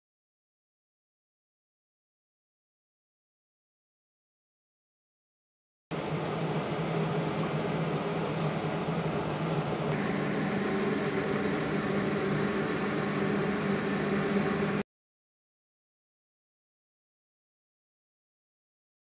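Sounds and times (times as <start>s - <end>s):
mechanical hum: 5.9s - 14.9s.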